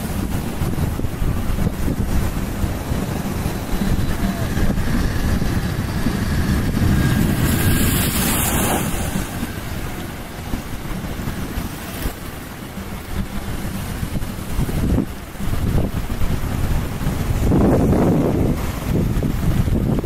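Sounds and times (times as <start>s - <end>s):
waves washing against rocks: 0.0s - 20.0s
wind buffeting microphone: 0.0s - 20.0s.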